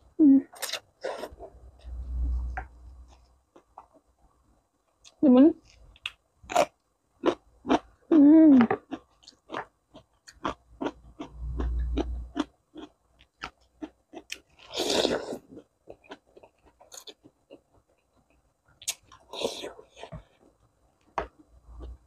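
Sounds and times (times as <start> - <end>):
low rumble: 1.7 - 3.0
chewing crisp cucumber: 5.0 - 17.8.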